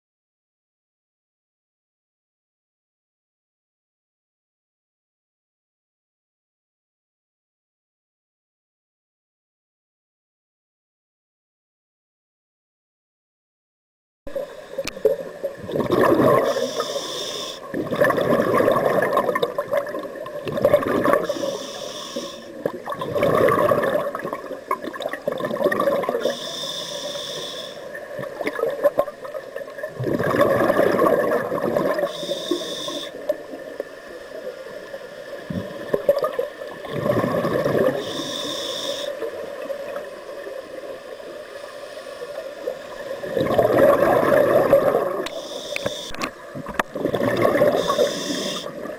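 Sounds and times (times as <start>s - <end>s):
bubbling exhaust underwater: 14.3s - 33.8s, 35.4s - 40.1s, 43.0s - 48.9s
hissing inhale through regulator: 16.2s - 17.8s, 21.1s - 22.6s, 26.1s - 28.1s, 31.8s - 33.4s, 37.7s - 39.6s, 41.5s - 42.8s, 45.2s - 46.4s, 47.5s - 48.9s.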